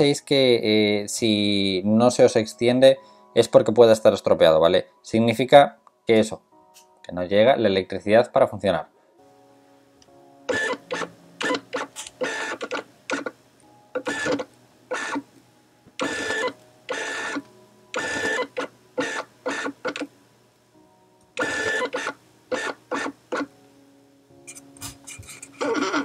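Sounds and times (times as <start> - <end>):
lens focus motor buzzing: 14.0 - 15.3, 16.0 - 17.4, 18.0 - 20.1, 21.4 - 23.5.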